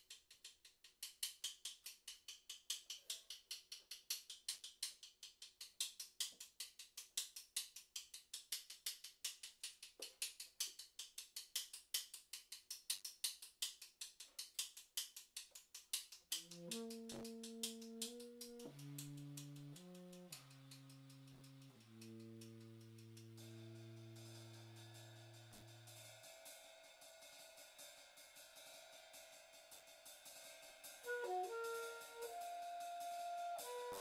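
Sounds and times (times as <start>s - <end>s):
drum kit played with sticks: 1.0s - 34.0s
tenor saxophone held notes: 31.1s - 34.0s.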